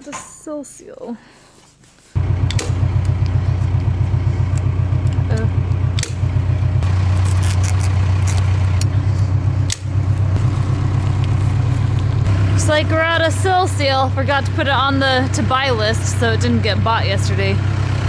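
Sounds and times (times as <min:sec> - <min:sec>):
engine running low hum: 0:02.2 - 0:18.0
hand stapler clicks: 0:06.0 - 0:06.2.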